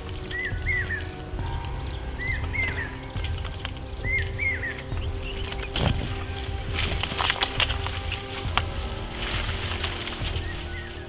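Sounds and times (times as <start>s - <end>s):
bird chirping: 0.0s - 11.0s
branches clicking: 0.0s - 11.0s
high-pitched insect drone: 0.0s - 11.0s.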